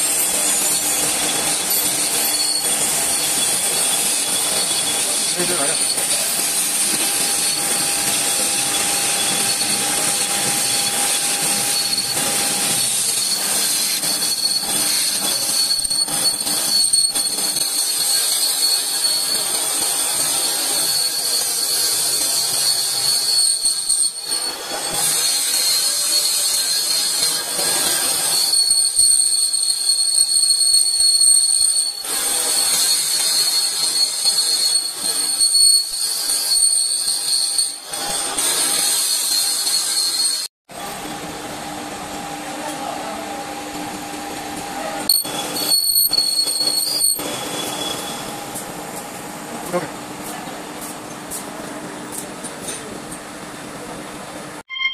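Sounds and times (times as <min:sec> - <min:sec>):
lathe running: 0:00.0 - 0:21.0
lathe tool squealing on metal: 0:00.0 - 0:41.0, 0:45.1 - 0:48.6.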